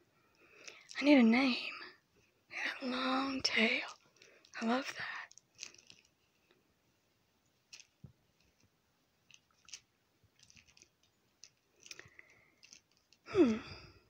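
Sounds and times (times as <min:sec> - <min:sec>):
hands rustling plush toy: 0:02.9 - 0:06.6, 0:07.6 - 0:13.7.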